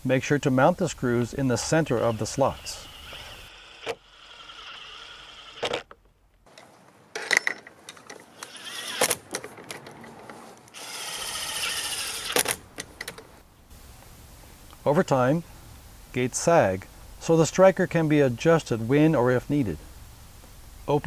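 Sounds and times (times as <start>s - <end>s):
cordless drill driving screws: 2.5s - 5.9s, 8.3s - 9.2s, 10.7s - 12.6s.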